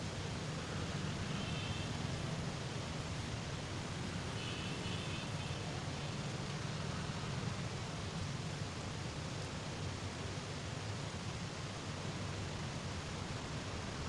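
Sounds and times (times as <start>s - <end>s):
distant road traffic: 0.0s - 14.0s.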